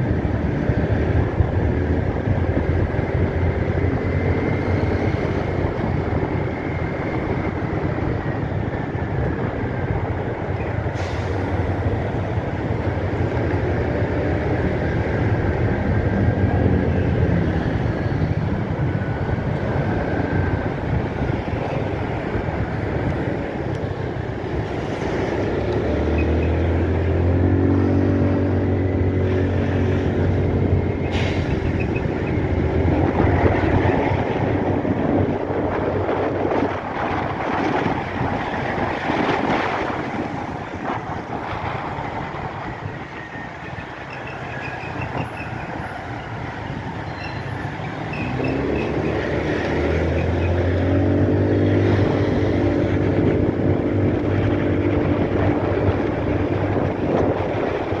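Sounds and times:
road and wind noise: 0.0s - 58.0s.

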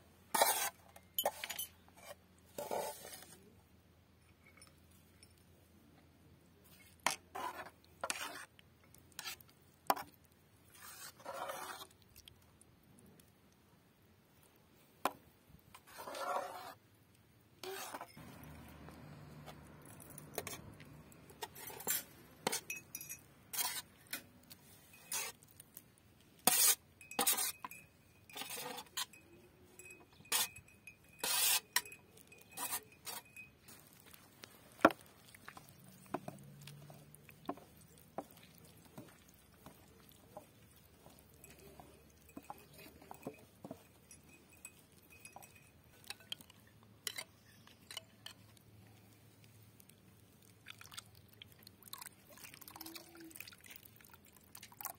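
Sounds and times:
metal spoon scraping metal pot: 0.3s - 3.2s, 7.1s - 8.5s, 10.8s - 11.9s, 15.8s - 16.8s, 17.6s - 24.3s, 24.9s - 25.4s, 26.4s - 33.5s, 39.0s - 48.4s.

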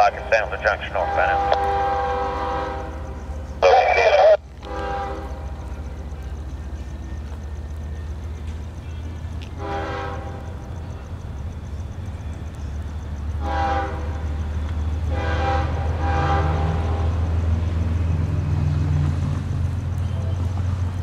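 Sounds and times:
low engine rumble: 0.0s - 21.0s
locomotive air horn blasts: 0.9s - 5.6s, 9.5s - 10.5s, 13.4s - 14.3s, 15.1s - 17.2s.

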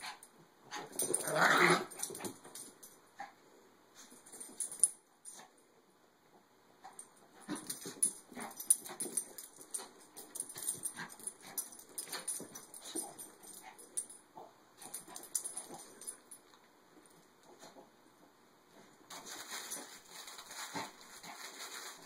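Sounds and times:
dogs scuffling: 19.1s - 22.0s.

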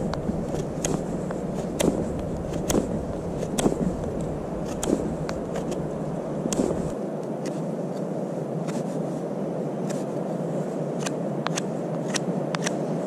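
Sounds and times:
knife carving wood clicks: 0.0s - 7.6s, 11.0s - 12.8s
low rushing noise: 0.0s - 13.0s.

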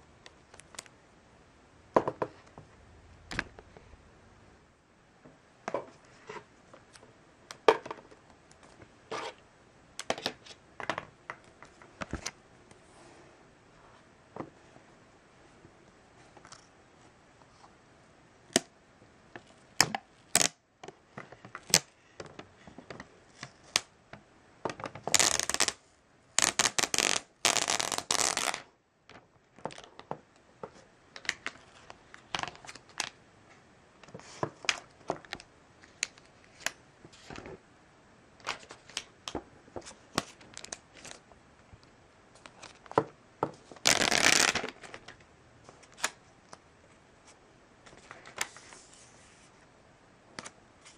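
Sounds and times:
plastic wrapping rustling: 43.6s - 45.2s.

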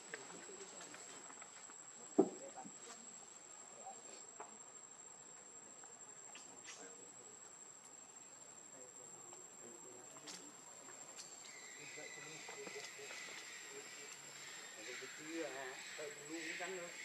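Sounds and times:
insect trilling: 5.9s - 17.0s.

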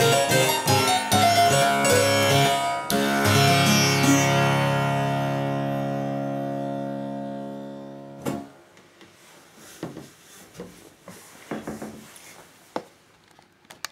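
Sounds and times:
virginal chord buzzing: 0.0s - 8.7s
light knocks and rustles: 8.3s - 13.4s.

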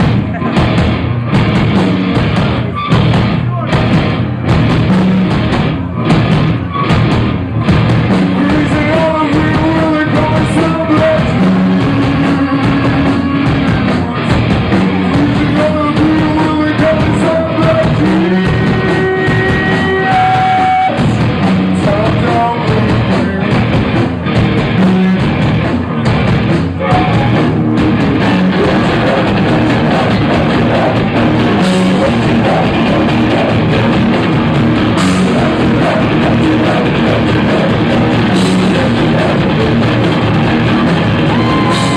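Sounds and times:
live rock band playing: 0.0s - 41.9s
person singing: 8.3s - 24.0s, 26.8s - 34.0s, 35.0s - 41.9s.

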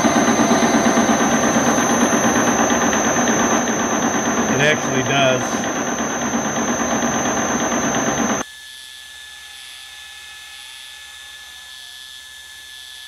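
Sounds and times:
metal lathe cutting steel: 0.0s - 8.4s.

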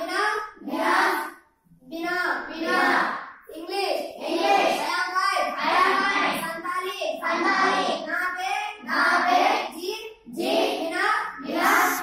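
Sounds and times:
children chanting phrases: 0.0s - 12.0s.

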